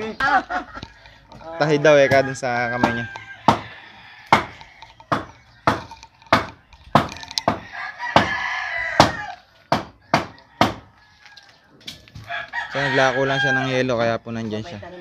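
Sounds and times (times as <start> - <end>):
rooster crowing: 0.8 - 13.9
sharp chopping strikes: 2.8 - 3.7, 9.0 - 10.9.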